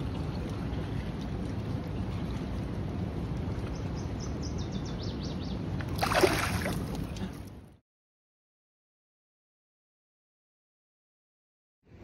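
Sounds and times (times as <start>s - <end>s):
water splashing: 5.8s - 7.5s
river water rushing: 6.0s - 6.9s.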